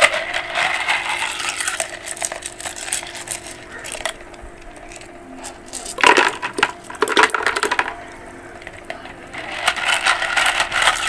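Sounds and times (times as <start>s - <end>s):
pebbles dropped into water tub: 0.0s - 8.0s.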